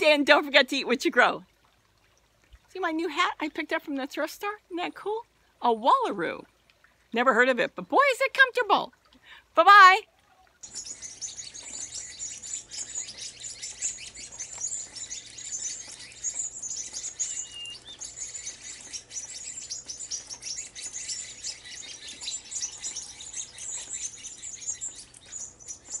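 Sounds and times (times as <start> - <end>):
sparrows chattering: 10.6 - 26.0.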